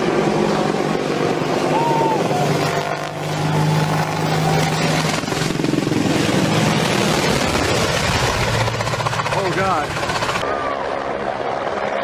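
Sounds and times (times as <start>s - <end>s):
helicopter flying low: 0.0s - 12.0s.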